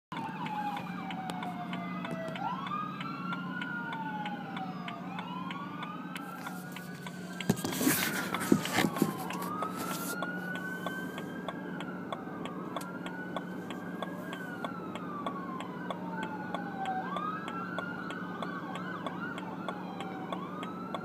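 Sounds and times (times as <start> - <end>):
police sirens wailing: 0.1 - 21.0
phone handling rustling and knocks: 6.4 - 10.2.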